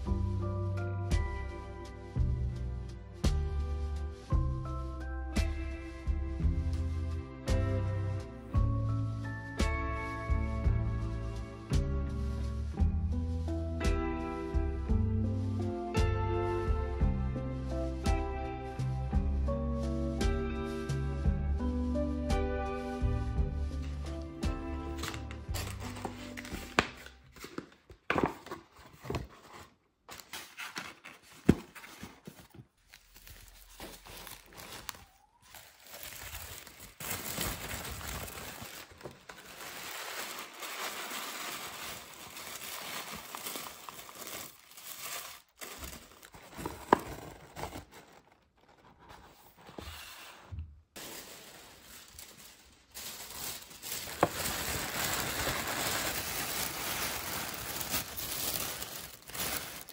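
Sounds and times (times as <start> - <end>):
tissue paper rustling: 22.8 - 59.9.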